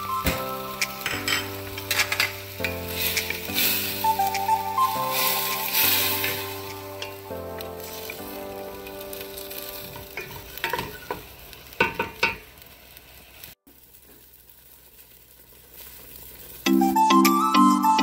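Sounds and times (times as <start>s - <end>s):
soft background music: 0.0s - 10.7s, 16.7s - 18.0s
food sizzling in sauce: 0.0s - 17.4s.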